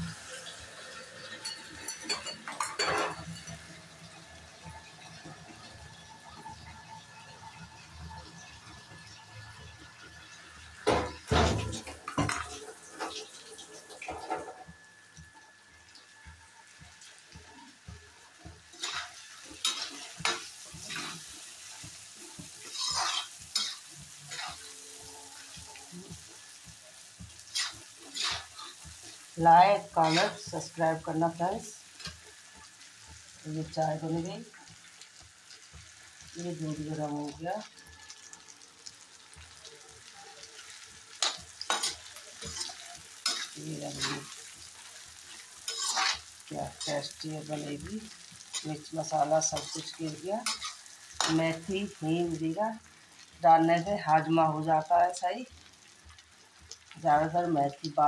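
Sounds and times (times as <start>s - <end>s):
frying sizzle: 0.0s - 58.0s
metal spatula scraping pan: 18.7s - 26.2s, 27.4s - 31.1s, 40.6s - 51.7s.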